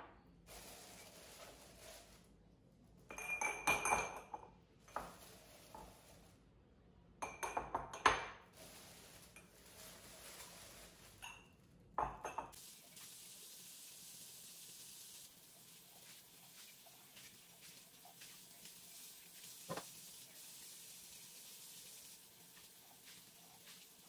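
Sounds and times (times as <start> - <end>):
glass jars clinking: 3.1 - 5.2.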